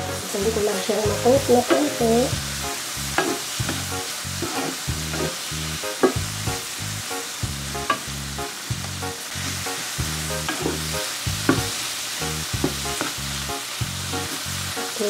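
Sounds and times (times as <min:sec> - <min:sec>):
vegetables sizzling in a frying pan: 0:00.0 - 0:15.0
wooden spatula scraping a pan: 0:03.2 - 0:06.2, 0:09.3 - 0:11.8.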